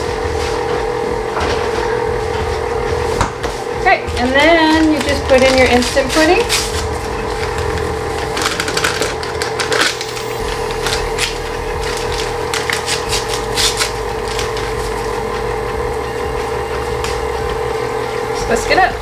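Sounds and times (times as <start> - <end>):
stand mixer humming: 0.0 - 19.0
packet crinkling and rustling: 4.6 - 15.0.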